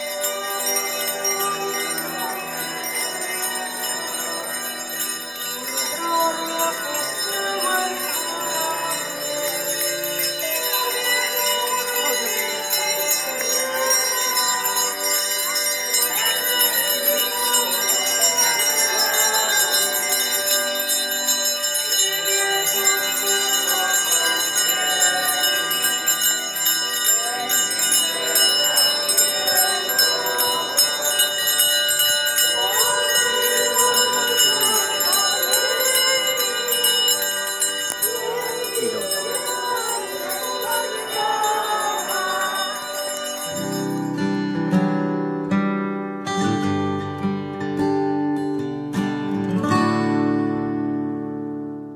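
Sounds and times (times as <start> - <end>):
small bells jingling: 0.0 - 44.5
music: 0.0 - 51.9.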